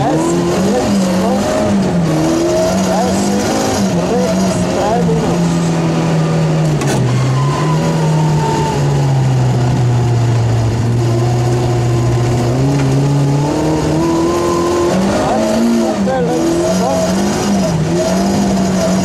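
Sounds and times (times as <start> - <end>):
car engine from inside cabin: 0.0 - 19.0.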